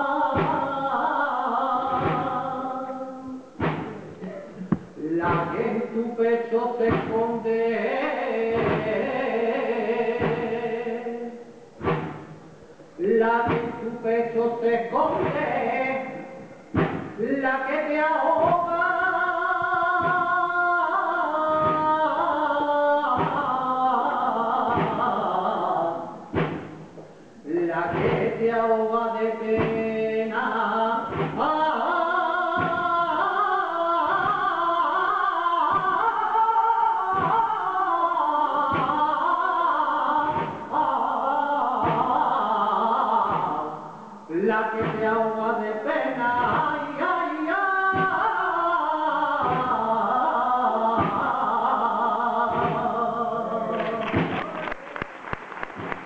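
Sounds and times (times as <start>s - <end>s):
man singing flamenco song: 5.0s - 11.3s, 27.5s - 54.4s
applause: 53.7s - 56.0s.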